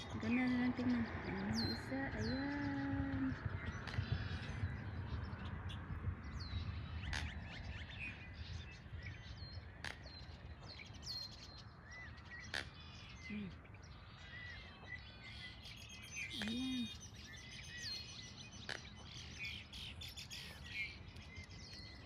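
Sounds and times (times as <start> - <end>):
small birds chirping: 0.0 - 22.0
steady low rumble: 0.0 - 22.0.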